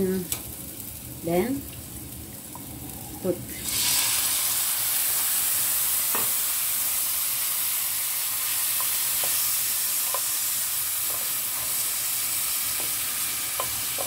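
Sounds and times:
meat sizzling in frying pan: 0.0s - 14.0s
spatula knocking on pan: 12.8s - 14.0s.

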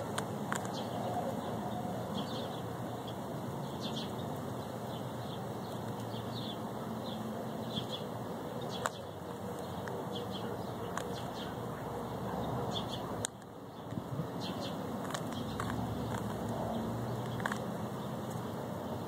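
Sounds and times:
outdoor background hum: 0.0s - 19.0s
sharp clicks: 0.1s - 0.8s, 13.2s - 14.0s, 15.0s - 18.4s
birds chirping: 0.6s - 19.0s.

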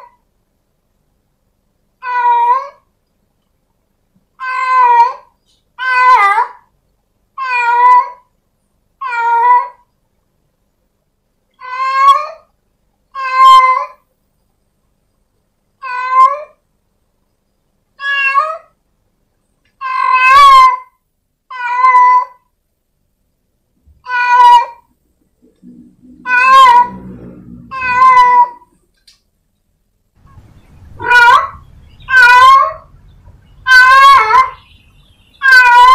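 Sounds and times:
cat meowing: 2.0s - 2.8s, 4.4s - 6.6s, 7.4s - 8.3s, 9.0s - 9.8s, 11.6s - 12.5s, 13.1s - 14.0s, 15.8s - 16.6s, 18.0s - 18.8s, 19.8s - 22.4s, 24.0s - 24.9s, 26.0s - 28.8s, 31.0s - 33.0s, 33.6s - 34.7s, 35.4s - 35.9s.

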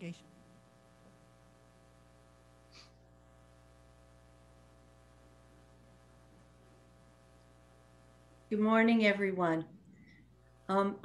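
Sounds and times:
low hum: 0.0s - 11.0s
brief soft hiss: 2.7s - 3.0s.

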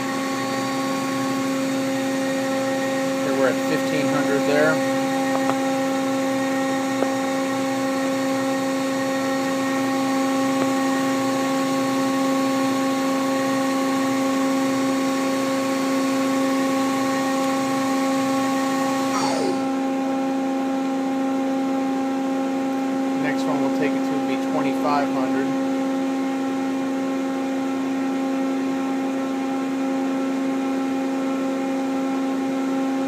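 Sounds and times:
lathe spindle whine: 0.0s - 20.9s
machine low steady hum: 0.0s - 32.4s.

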